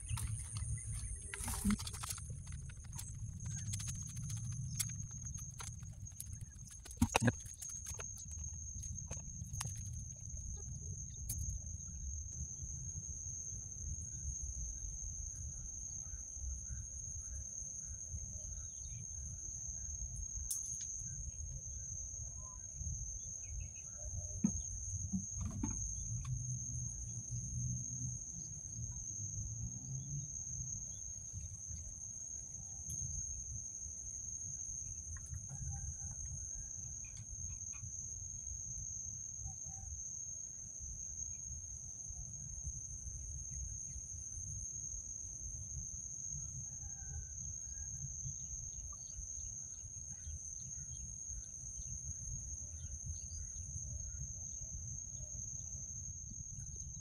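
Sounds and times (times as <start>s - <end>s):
wind rumble on microphone: 0.0s - 12.7s
high-pitched insect drone: 0.0s - 57.0s.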